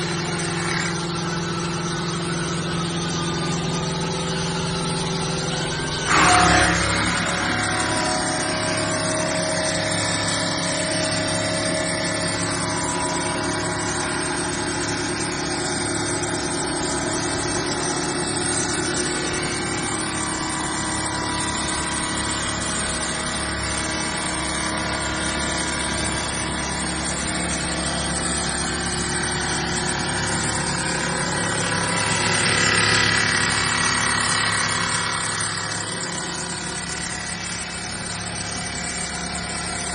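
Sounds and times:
stone saw humming and grinding: 0:00.0 - 0:39.9.

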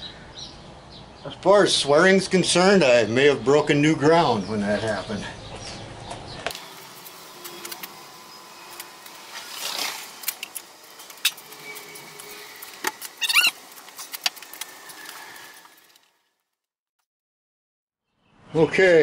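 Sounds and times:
squeaky chirp: 0:13.2 - 0:13.6.

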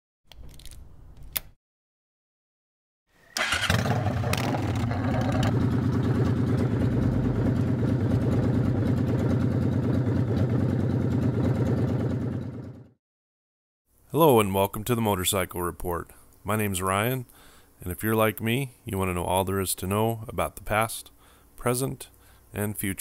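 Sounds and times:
motorcycle engine starting and idling: 0:03.4 - 0:13.0.

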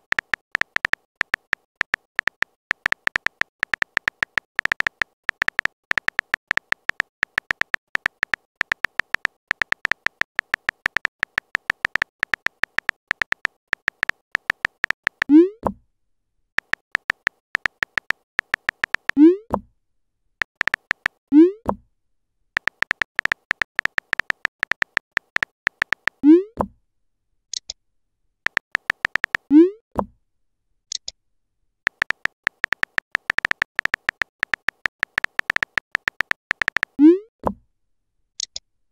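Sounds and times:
phone keyboard typing clicks: 0:00.0 - 0:15.4, 0:16.6 - 0:19.2, 0:20.4 - 0:21.2, 0:22.6 - 0:26.2, 0:28.5 - 0:29.5, 0:31.9 - 0:37.0.

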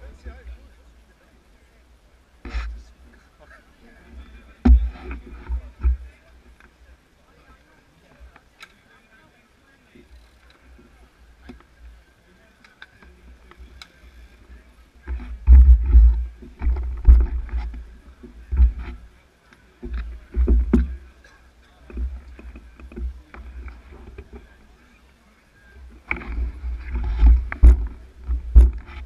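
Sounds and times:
bicycles clicking and knocking: 0:04.1 - 0:06.9, 0:09.9 - 0:25.0, 0:25.9 - 0:29.0
wind buffeting microphone: 0:15.1 - 0:19.0.

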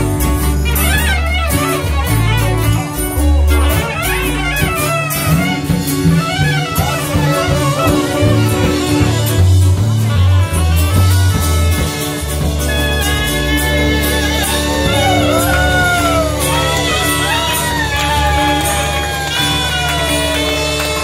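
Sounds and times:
bass line: 0:00.0 - 0:21.0
drums: 0:00.0 - 0:21.0
reed horn melody: 0:00.0 - 0:21.0
strummed guitar: 0:00.0 - 0:21.0.

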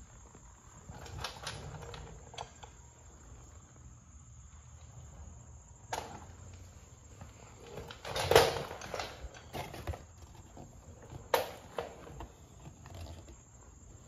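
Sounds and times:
handling noise: 0:05.0 - 0:14.0.

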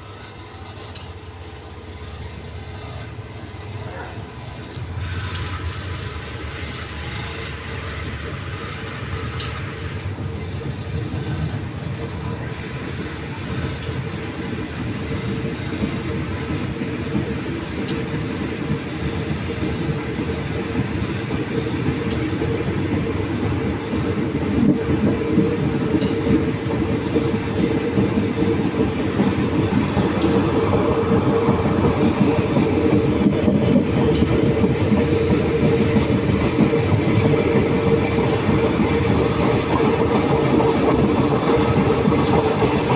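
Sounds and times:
train wheels rumbling on rails: 0:00.0 - 0:42.9.

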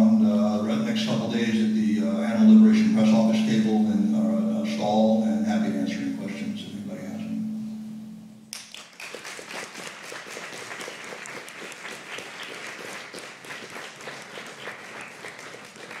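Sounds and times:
audience applauding: 0:08.5 - 0:16.0.

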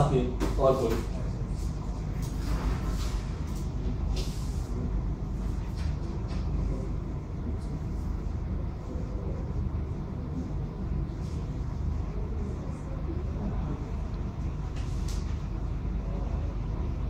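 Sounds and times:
low background rumble: 0:00.0 - 0:17.0.

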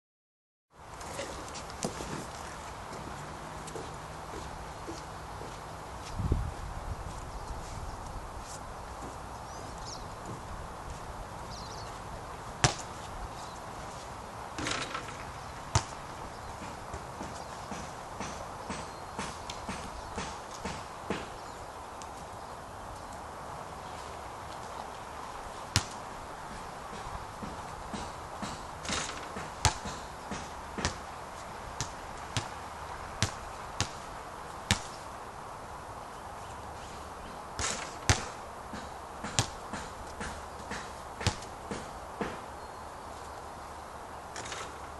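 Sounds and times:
basketball hitting hoop: 0:12.6 - 0:12.9, 0:14.6 - 0:16.0, 0:28.4 - 0:31.0, 0:34.7 - 0:34.9, 0:37.6 - 0:38.4, 0:39.2 - 0:39.8, 0:40.7 - 0:41.8
basketball bouncing on court: 0:14.6 - 0:16.0, 0:26.9 - 0:31.0, 0:31.8 - 0:32.6, 0:33.2 - 0:34.0, 0:37.6 - 0:42.4.

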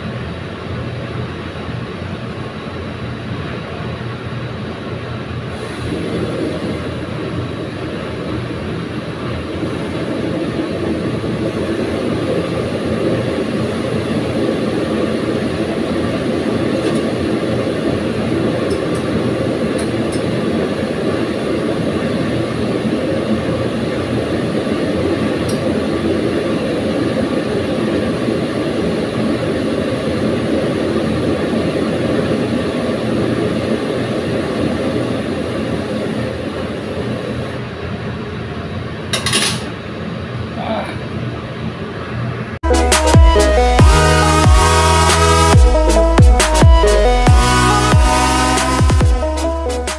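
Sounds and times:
gas burners rushing: 0:05.1 - 0:37.7.

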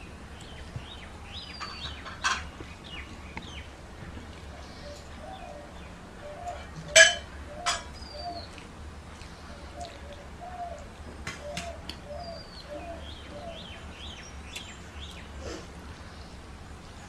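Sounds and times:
low steady hum: 0:00.0 - 0:17.0
bird calling: 0:04.5 - 0:08.6, 0:09.2 - 0:16.4.

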